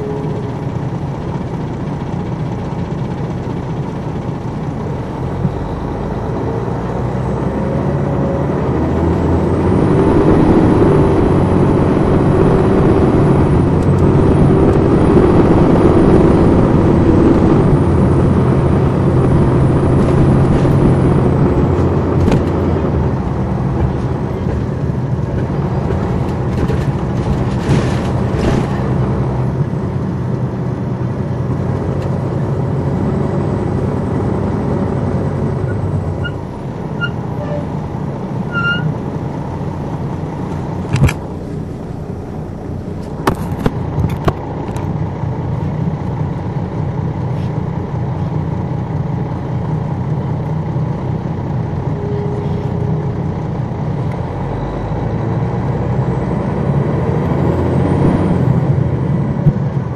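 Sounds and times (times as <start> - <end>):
diesel coach engine: 0.0 - 59.9.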